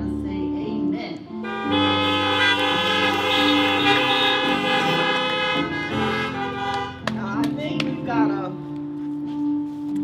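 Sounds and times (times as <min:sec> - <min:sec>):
organ playing held chords: 0:01.4 - 0:07.1.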